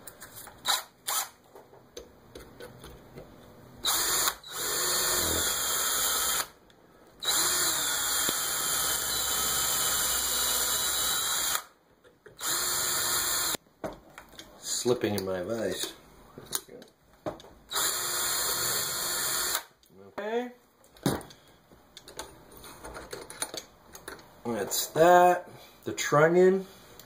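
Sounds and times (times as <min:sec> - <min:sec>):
power drill drilling metal: 0:03.8 - 0:06.5, 0:07.2 - 0:11.7, 0:12.4 - 0:13.6, 0:17.7 - 0:19.7.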